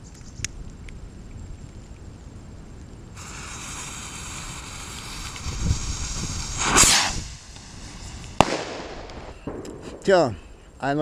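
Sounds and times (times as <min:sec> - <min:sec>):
fuse hissing: 0:03.2 - 0:09.5
firework bang: 0:03.2 - 0:10.4
rocket whoosh: 0:03.2 - 0:10.8.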